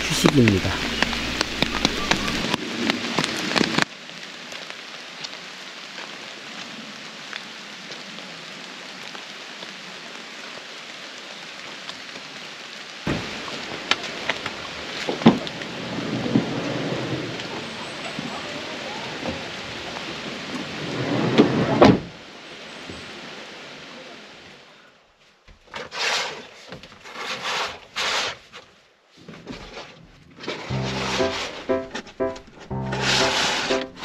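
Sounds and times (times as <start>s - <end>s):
heavier raindrops ticking: 0.0s - 2.6s
rain falling on leaves: 0.0s - 25.2s, 30.6s - 34.0s.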